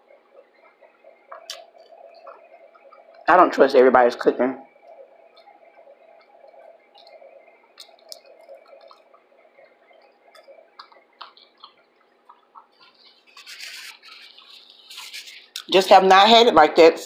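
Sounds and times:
faint steady hum: 0:00.0 - 0:17.0
fingers being licked: 0:01.3 - 0:03.2, 0:07.8 - 0:09.2, 0:10.3 - 0:15.7
person chewing: 0:07.8 - 0:15.7.

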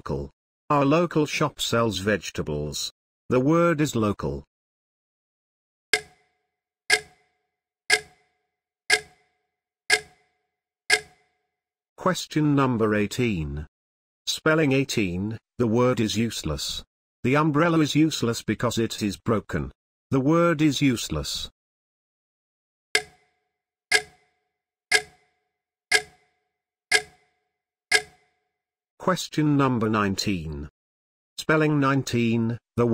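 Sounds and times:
clock ticking: 0:06.0 - 0:06.2, 0:06.9 - 0:07.2, 0:07.9 - 0:08.2, 0:08.9 - 0:09.3, 0:09.9 - 0:10.2, 0:10.9 - 0:11.2, 0:23.0 - 0:23.2, 0:23.9 - 0:24.2, 0:24.9 - 0:25.2, 0:25.9 - 0:26.2, 0:26.9 - 0:27.2, 0:27.9 - 0:28.2.

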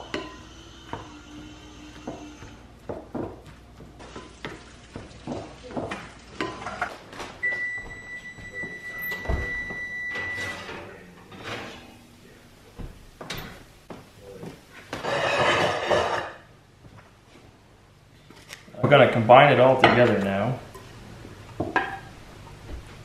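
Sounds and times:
electronic beep: 0:07.4 - 0:10.7
wooden spoon scraping glass bowl: 0:15.0 - 0:16.4.

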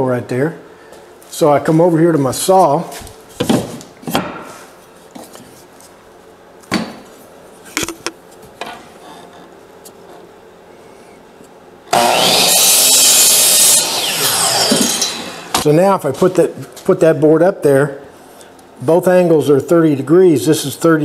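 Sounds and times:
miter saw cutting wood: 0:11.9 - 0:15.7.

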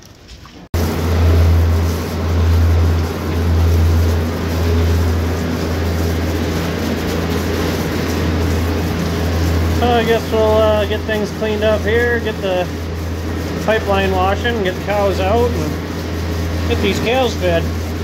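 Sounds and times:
rushing noise: 0:00.8 - 0:13.6
machine humming: 0:00.8 - 0:18.0.

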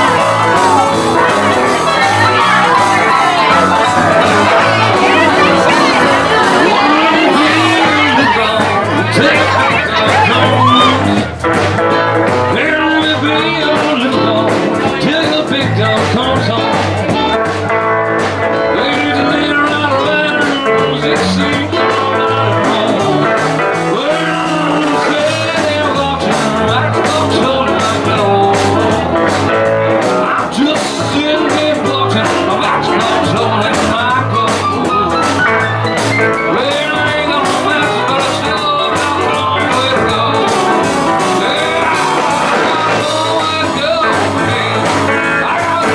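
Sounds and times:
electric guitar: 0:00.0 - 0:45.9
man singing: 0:00.0 - 0:45.9.

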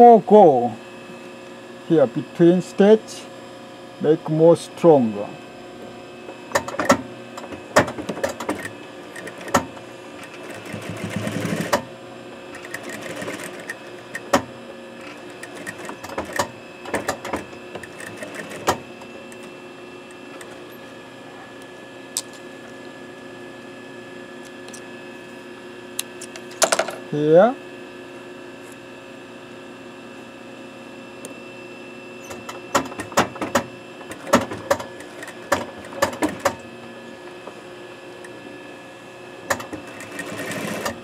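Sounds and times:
steady hum: 0:00.0 - 0:41.0
sewing machine stitching: 0:06.5 - 0:11.9, 0:12.5 - 0:14.4, 0:15.0 - 0:19.4, 0:32.3 - 0:36.6, 0:39.5 - 0:41.0.

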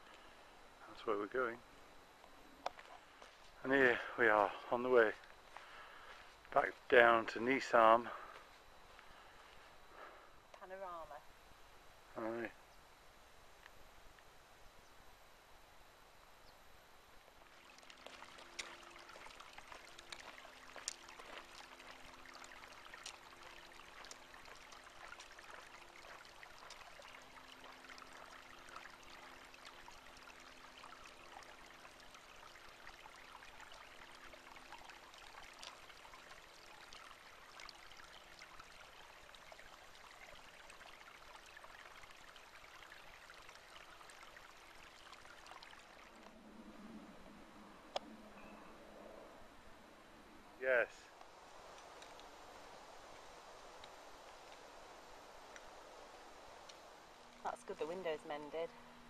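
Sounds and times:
faint hiss: 0:00.0 - 0:59.0
faint low hum: 0:00.0 - 0:59.0.

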